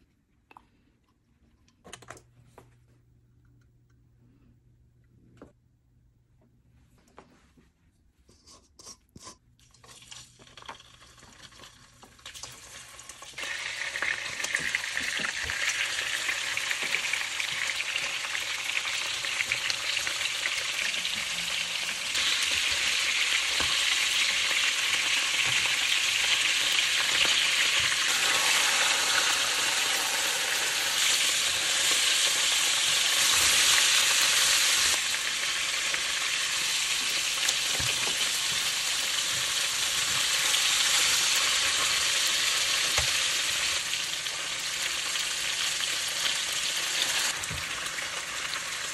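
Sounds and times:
crab frying in hot oil: 0:09.8 - 0:48.9.

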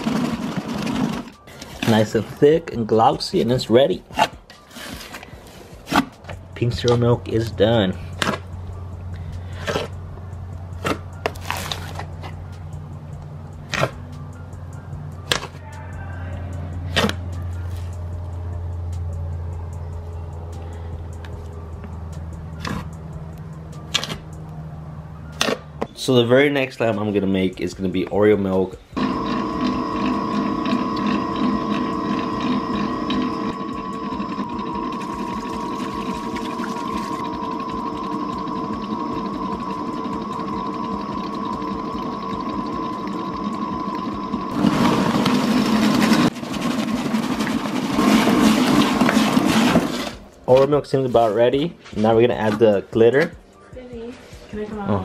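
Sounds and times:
steady low hum: 0:28.9 - 0:46.4
stand mixer motor whining: 0:29.0 - 0:50.1
paddle churning thick slime: 0:44.6 - 0:50.2.

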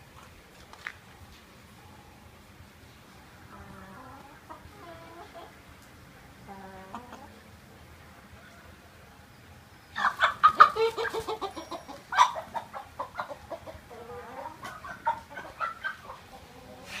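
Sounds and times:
chickens squawking and clucking: 0:03.3 - 0:09.0, 0:09.8 - 0:17.0.

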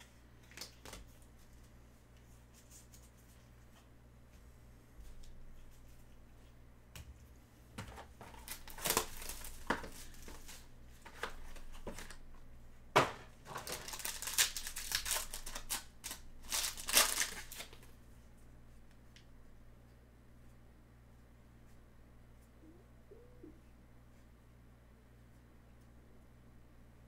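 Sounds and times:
foil wrapper crinkling and tearing: 0:08.4 - 0:12.2, 0:13.5 - 0:17.9.

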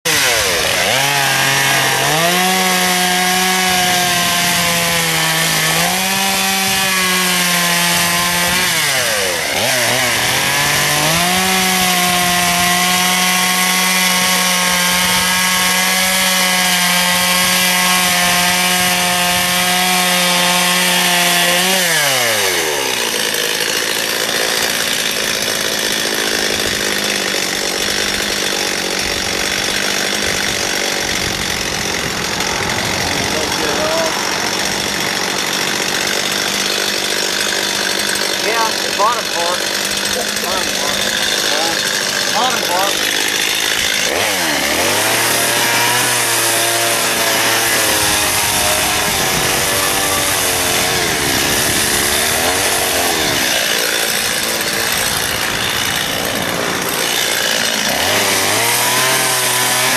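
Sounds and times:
chainsaw revving cutting wood: 0:00.0 - 0:59.9.

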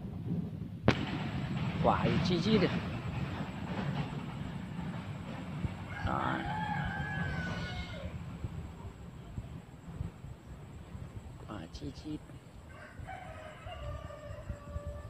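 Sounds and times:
rooster crowing: 0:05.9 - 0:08.2, 0:12.6 - 0:15.0.

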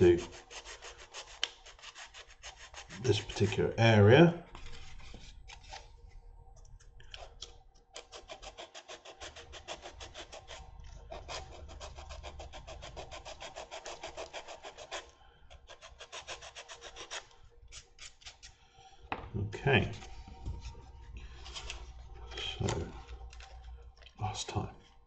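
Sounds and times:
sanding stick scraping: 0:00.0 - 0:03.8, 0:08.0 - 0:18.5.

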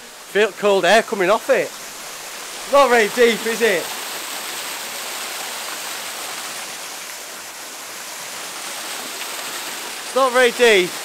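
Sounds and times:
small waterfall splashing: 0:00.0 - 0:11.0.

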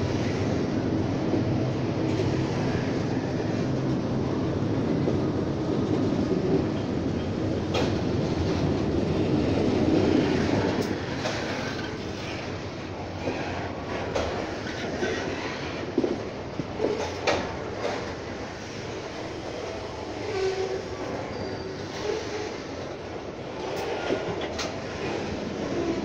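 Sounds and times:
train wheels rumbling on rails: 0:00.0 - 0:26.0
wheels clacking over rail joints: 0:06.4 - 0:20.8, 0:23.6 - 0:26.0.

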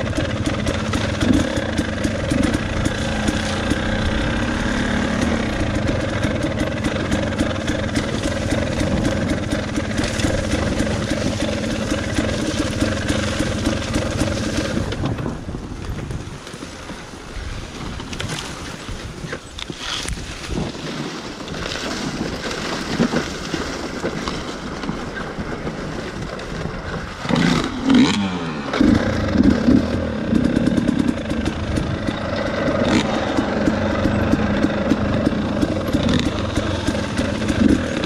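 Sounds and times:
dirt bike engine revving: 0:00.0 - 0:15.4, 0:27.2 - 0:38.0.

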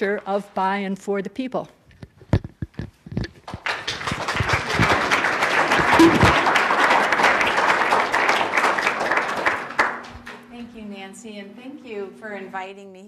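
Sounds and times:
audience applause: 0:03.4 - 0:10.2.

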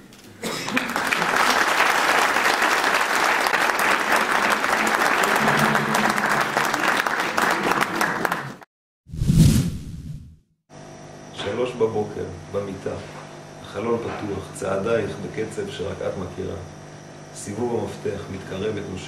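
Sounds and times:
audience applauding: 0:00.5 - 0:08.7.

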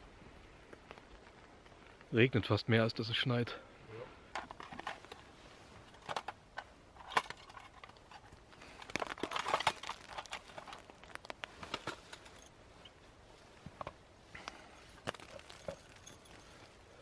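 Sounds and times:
faint steady hiss: 0:00.0 - 0:17.0
small box clicks and rustles: 0:04.3 - 0:12.5, 0:13.7 - 0:16.6.

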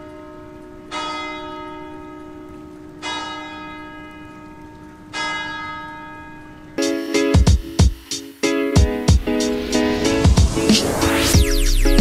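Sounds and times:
church bell tolling: 0:00.0 - 0:06.8.

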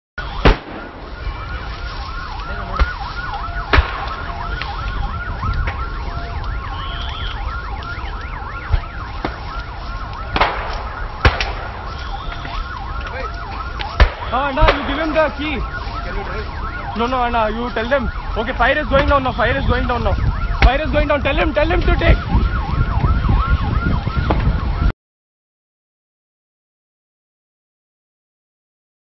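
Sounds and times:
emergency siren yelping: 0:00.2 - 0:24.9
sharp pops and cracks: 0:01.8 - 0:16.1, 0:20.4 - 0:21.0.

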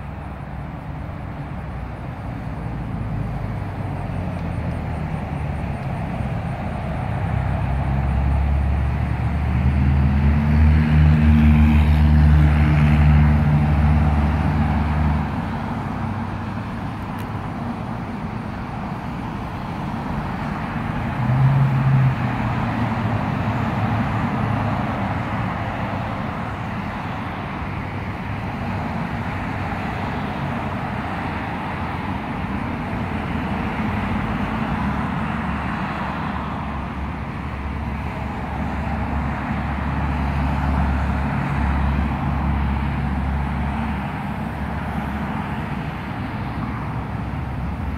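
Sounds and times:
passing cars tyre noise: 0:00.0 - 0:47.9
vehicle engine droning: 0:00.0 - 0:47.9.

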